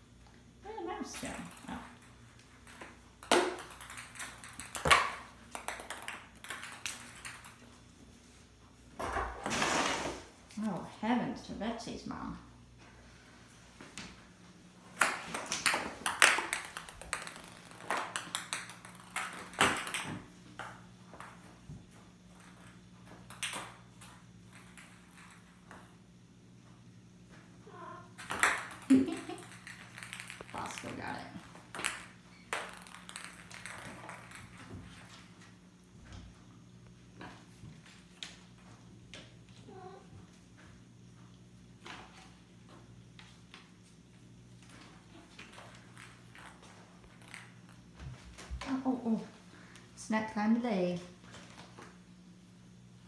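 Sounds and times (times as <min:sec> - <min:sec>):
ping pong ball clattering on tiles: 0:01.8 - 0:07.6, 0:15.0 - 0:21.5, 0:28.2 - 0:34.9.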